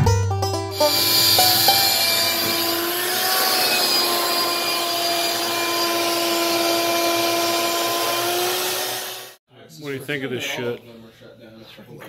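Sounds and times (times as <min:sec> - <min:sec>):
shop vacuum running: 0:00.7 - 0:09.4.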